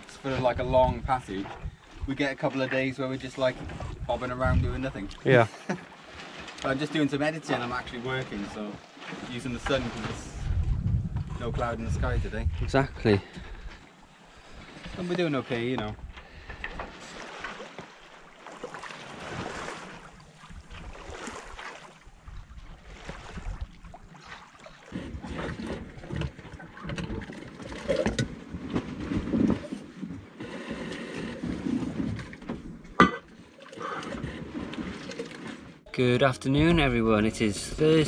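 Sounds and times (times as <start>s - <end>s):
sea sounds: 0.0s - 38.0s
wind on microphone: 0.4s - 2.2s, 3.6s - 5.3s, 9.7s - 13.8s.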